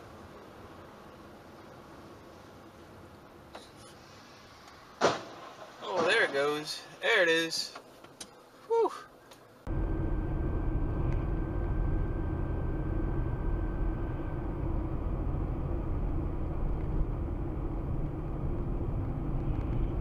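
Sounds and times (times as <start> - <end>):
faint steady hum: 0.0 - 20.0
car engine and tyre rumble: 9.4 - 20.0.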